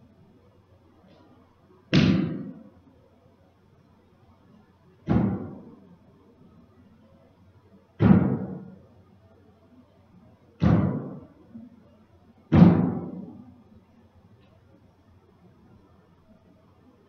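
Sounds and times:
heavy booming hits with echo: 0:01.9 - 0:02.6, 0:08.0 - 0:08.7, 0:12.5 - 0:13.4.

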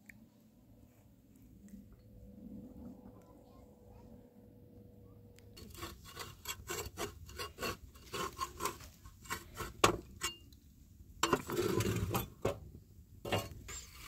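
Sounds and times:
metal spatula scraping griddle: 0:05.6 - 0:10.4, 0:11.2 - 0:12.6, 0:13.3 - 0:14.0.

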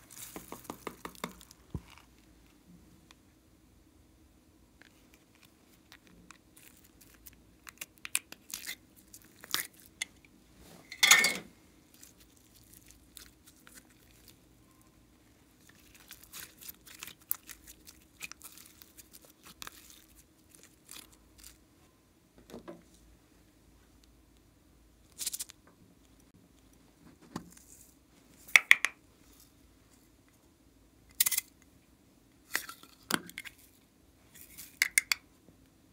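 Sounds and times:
slime tearing and peeling: 0:15.7 - 0:21.6.

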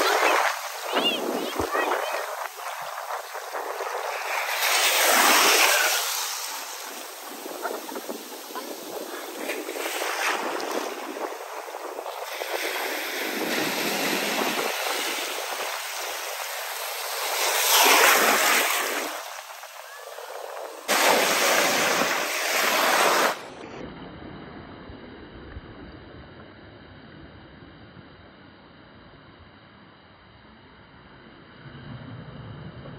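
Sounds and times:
faint hiss: 0:00.0 - 0:23.4
ocean surf washing onto beach: 0:00.0 - 0:23.6.

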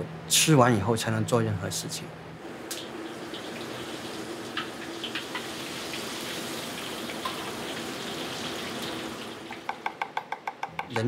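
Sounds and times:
hot oil sizzling: 0:02.4 - 0:09.8.

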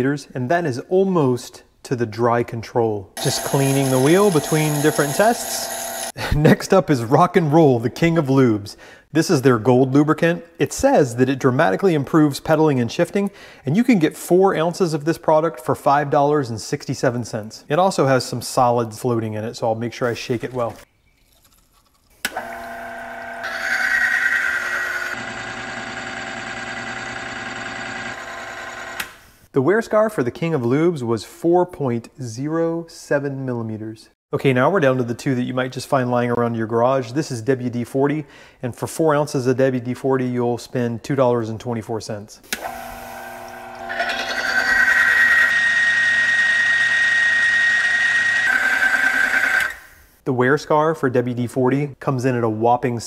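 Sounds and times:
metal wheel grinding with whine: 0:03.2 - 0:06.1, 0:22.4 - 0:29.0, 0:42.8 - 0:49.8
electric motor humming: 0:03.2 - 0:06.2, 0:22.3 - 0:29.1, 0:42.6 - 0:49.7.

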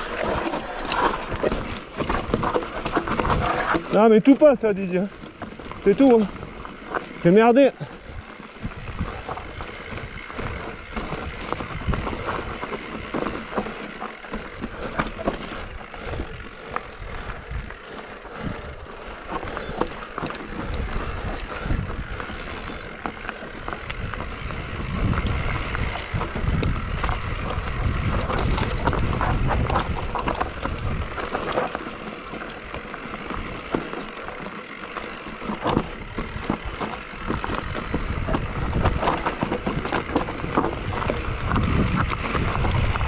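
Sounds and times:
bike knocking and rattling: 0:00.0 - 0:43.0
bike tyres rolling over rocks: 0:00.0 - 0:43.0
wind on microphone: 0:08.0 - 0:12.6, 0:20.6 - 0:22.8, 0:23.8 - 0:31.3, 0:37.2 - 0:43.0.

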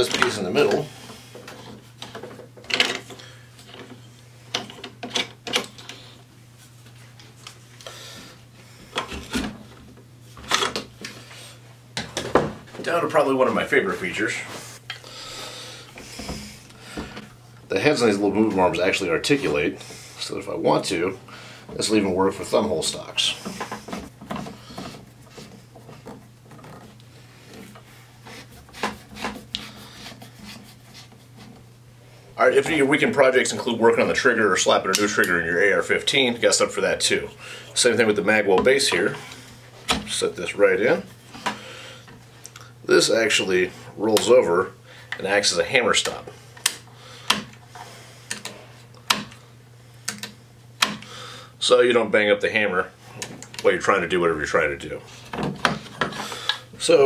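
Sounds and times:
wooden stock rubbing against metal: 0:23.2 - 0:31.7.

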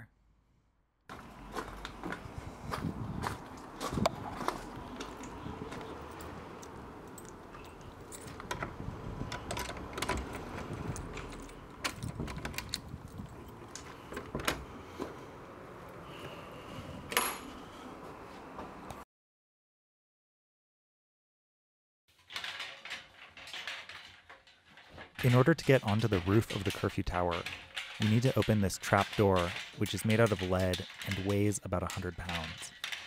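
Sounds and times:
sharp clicks and knocks: 0:03.5 - 0:15.2, 0:22.3 - 0:33.0
keys jangling: 0:04.3 - 0:14.4
key working in a lock: 0:04.5 - 0:14.8, 0:22.3 - 0:33.0.

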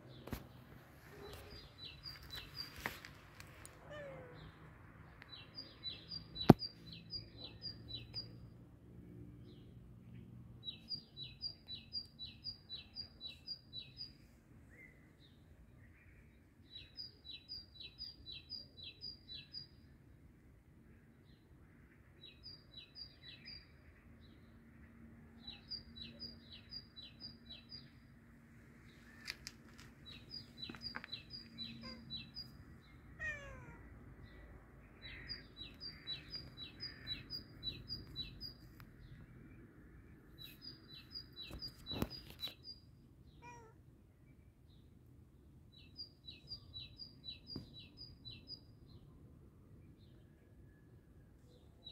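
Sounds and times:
cat meowing: 0:03.8 - 0:04.5, 0:33.2 - 0:33.8, 0:43.4 - 0:43.8
small bird chirping: 0:05.1 - 0:08.5, 0:29.0 - 0:39.4, 0:40.4 - 0:43.8.

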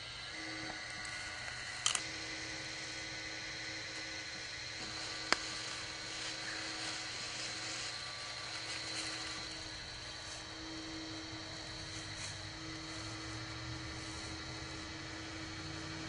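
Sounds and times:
machine mechanical hum: 0:00.0 - 0:16.0.

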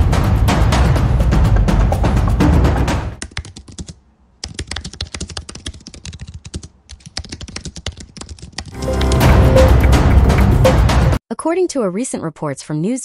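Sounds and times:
computer keyboard key clicks: 0:03.2 - 0:08.8.

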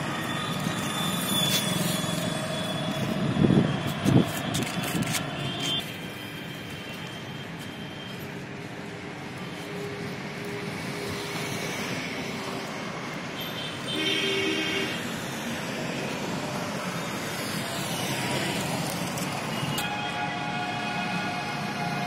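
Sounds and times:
road traffic noise: 0:00.0 - 0:22.0
vehicle horn: 0:05.4 - 0:05.9, 0:13.4 - 0:15.0, 0:19.7 - 0:22.0.

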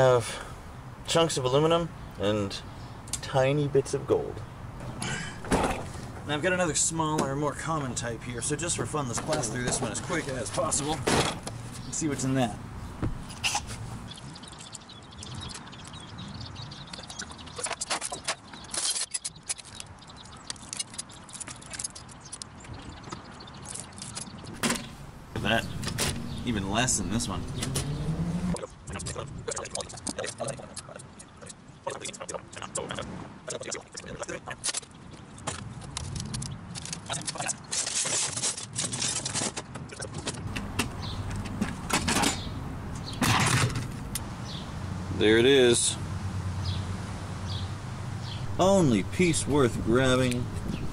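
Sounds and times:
loose metal bits jingling: 0:08.4 - 0:12.4
metal chassis and plastic rattling: 0:08.6 - 0:12.0, 0:35.4 - 0:44.2
plastic and metal parts clattering: 0:09.1 - 0:11.7, 0:36.0 - 0:42.5, 0:43.2 - 0:44.0.

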